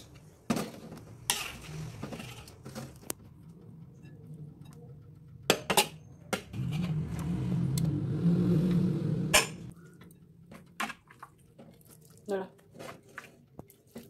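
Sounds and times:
low steady rumble: 3.1s - 10.4s.

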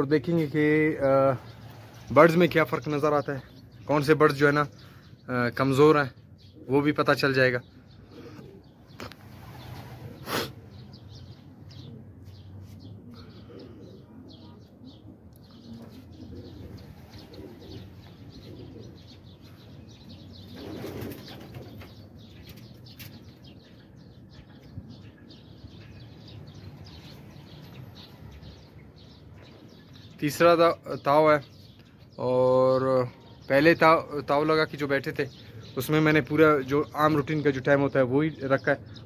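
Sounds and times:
pigeons cooing: 0.4s - 3.7s, 6.2s - 39.0s
pigeon wings flapping: 20.6s - 21.9s.

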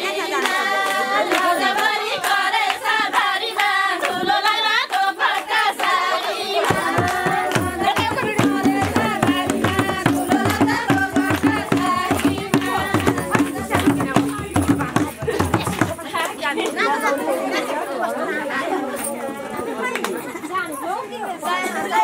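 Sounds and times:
women singing folk song: 0.0s - 16.7s
hand clapping: 0.4s - 4.2s, 4.8s - 16.8s, 19.9s - 20.2s
hand drum beat: 6.6s - 16.2s.

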